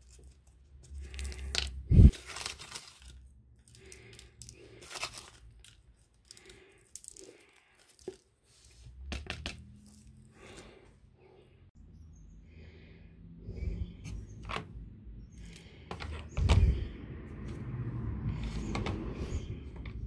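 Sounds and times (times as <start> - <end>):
rustling and crinkling: 0.0 - 10.8.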